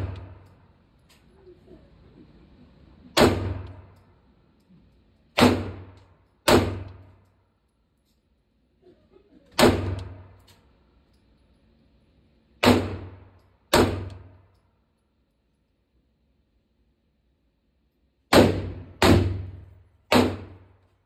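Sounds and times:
gunshots echoing indoors: 0.0 - 0.8, 3.1 - 4.2, 5.3 - 7.4, 9.5 - 10.5, 12.6 - 14.6, 18.2 - 21.0.

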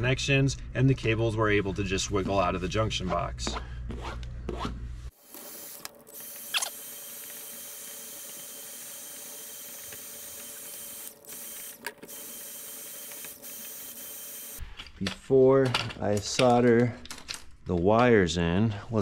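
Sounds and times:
heat gun fan whirring: 5.2 - 14.6.

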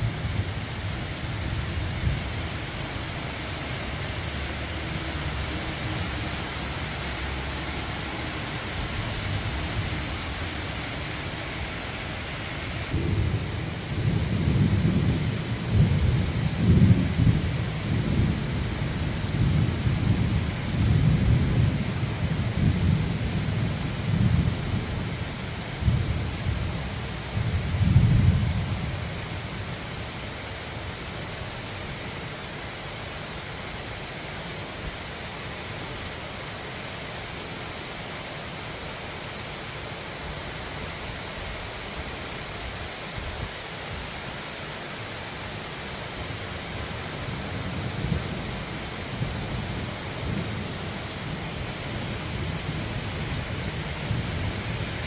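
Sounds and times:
rain hissing: 0.0 - 55.0
thunder rumbling: 12.6 - 24.9.

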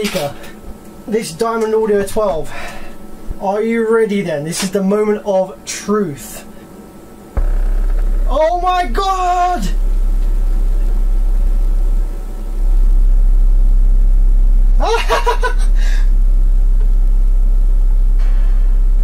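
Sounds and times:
deep sine-wave bass tone: 7.3 - 19.0.

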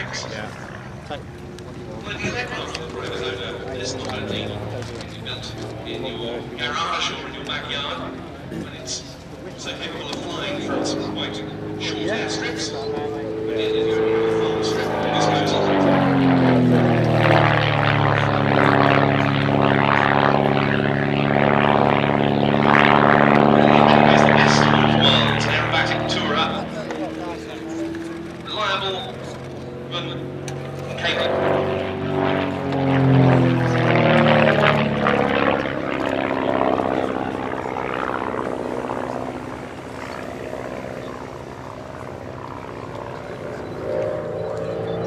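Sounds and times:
propeller aircraft engine droning: 0.0 - 45.0.

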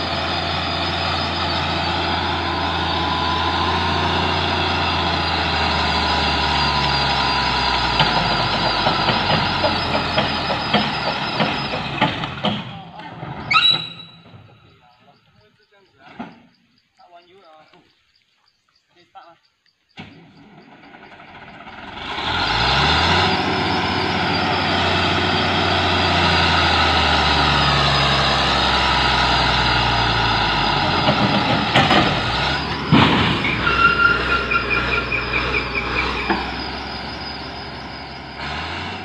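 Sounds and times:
diesel engine revving: 0.0 - 14.4, 20.0 - 39.0
loud crashes: 30.1 - 37.6.

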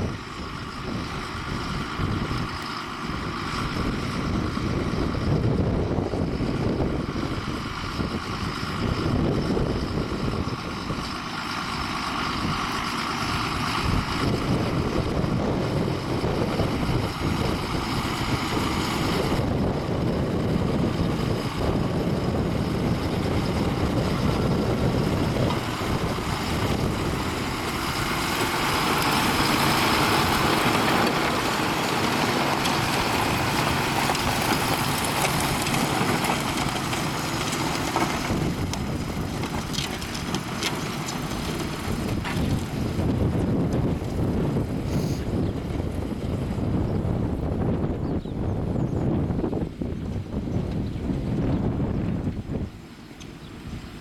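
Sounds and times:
tractor diesel engine under load: 0.0 - 54.0.

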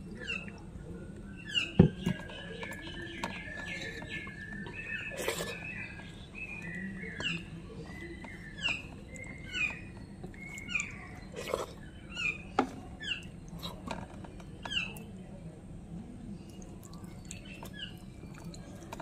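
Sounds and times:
bird chirping: 1.2 - 15.1, 16.5 - 19.0.

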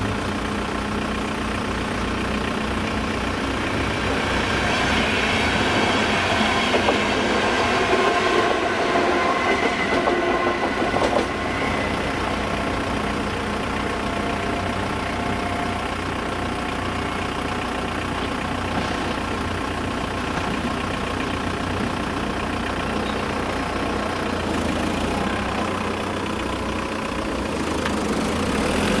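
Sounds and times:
train wheels rumbling and clattering: 2.6 - 29.0
level crossing warning signal: 2.9 - 19.4.

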